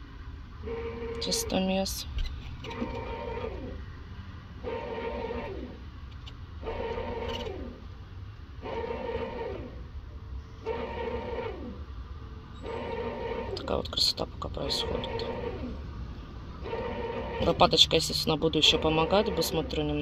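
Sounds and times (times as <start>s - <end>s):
bread machine motor kneading: 2.6s - 3.9s, 4.6s - 7.9s, 8.6s - 9.9s, 10.6s - 11.8s, 12.6s - 14.0s, 14.6s - 15.8s, 16.6s - 20.0s.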